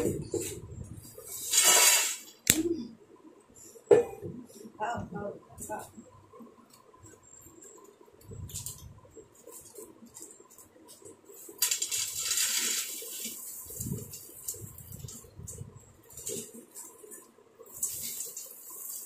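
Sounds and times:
plastic packet crinkling: 11.5s - 15.1s
peanuts dropping onto steel plate: 11.6s - 13.4s.

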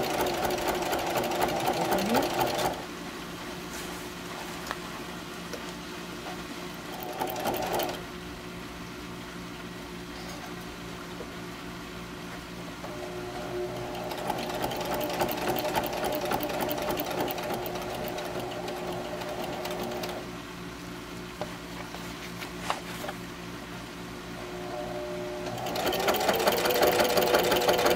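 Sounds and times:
sewing machine stitching: 0.0s - 2.8s, 6.9s - 8.0s, 12.9s - 20.2s, 25.4s - 27.9s
steady machine hum: 11.5s - 21.3s, 23.5s - 27.9s.

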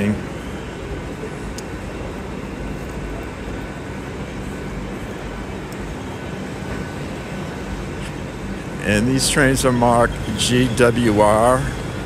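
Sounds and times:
low rumble and hum of station: 0.0s - 12.0s.

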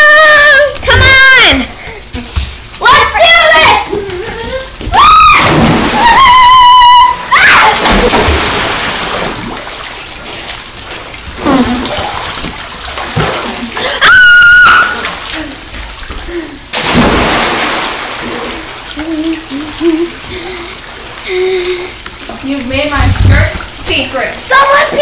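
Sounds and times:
churning falling water: 0.0s - 25.0s
high-pitched scream: 4.9s - 8.0s, 14.0s - 15.1s
big splashes into pool: 5.0s - 15.6s, 16.7s - 19.0s.

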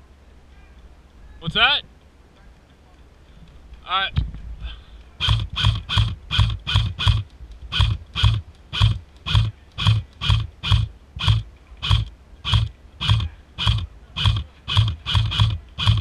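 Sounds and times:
airsoft gun shots clacking: 5.2s - 16.0s.

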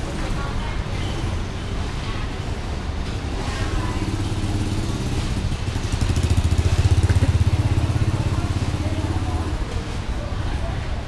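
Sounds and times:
motorbike engine running: 4.0s - 9.6s.

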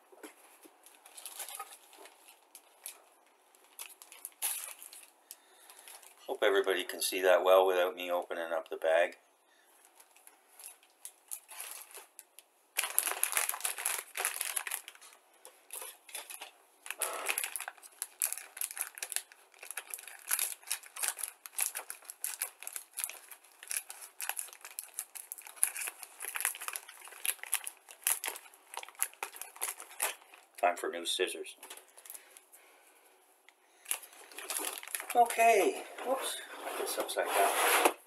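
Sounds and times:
plastic bag crinkling: 0.8s - 6.7s, 9.8s - 30.6s, 33.8s - 36.2s.

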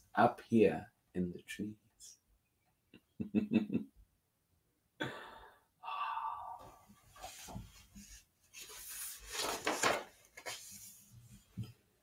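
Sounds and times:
paper rustling: 7.1s - 11.5s
book page turning: 7.2s - 11.1s.

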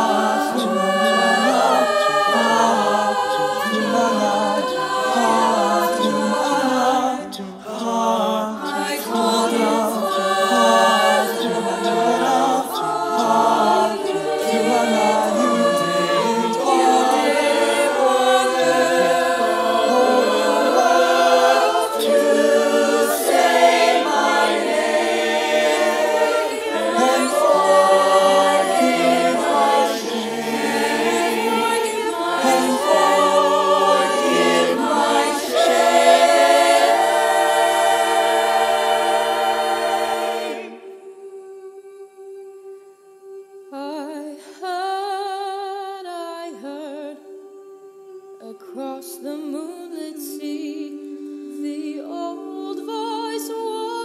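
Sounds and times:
choir singing a cappella: 0.0s - 54.0s.

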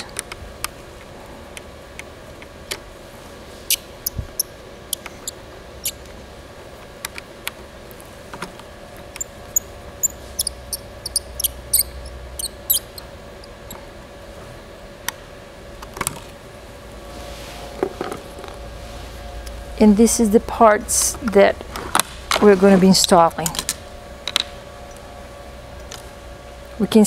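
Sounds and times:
short high squeaks: 9.6s - 13.0s.

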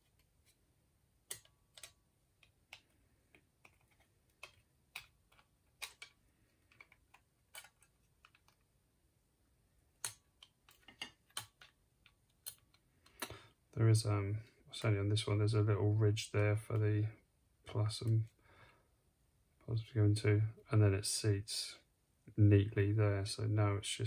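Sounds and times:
small plastic parts clicking: 1.2s - 8.7s, 10.0s - 13.4s.

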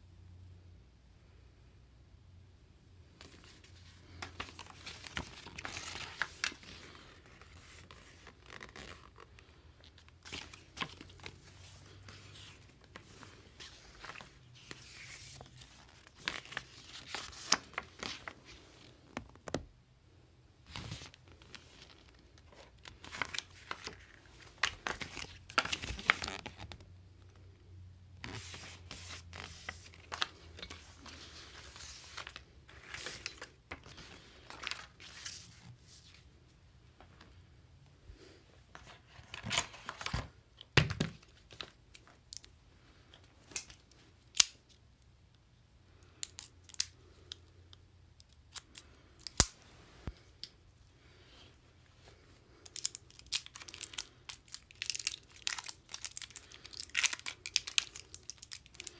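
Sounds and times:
packaging ripping and crinkling: 52.7s - 58.9s.

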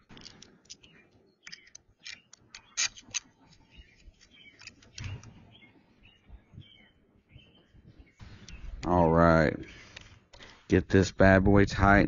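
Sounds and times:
sharp clicks: 0.1s - 5.4s.

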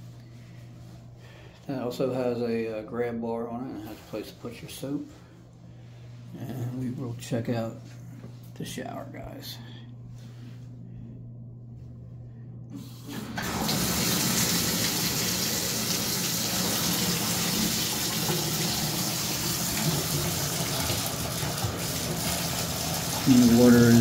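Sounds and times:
shower valve turning: 12.8s - 24.0s
water pouring into bathtub: 13.1s - 24.0s.

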